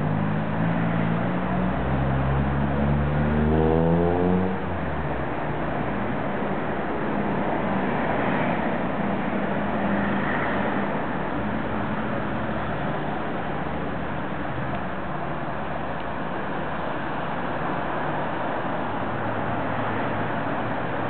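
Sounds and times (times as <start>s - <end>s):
car engine revving: 2.2s - 4.7s.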